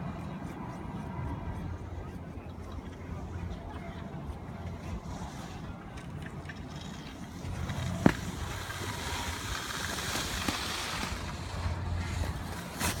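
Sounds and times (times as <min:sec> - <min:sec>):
skis scraping over snow: 0:05.0 - 0:13.0.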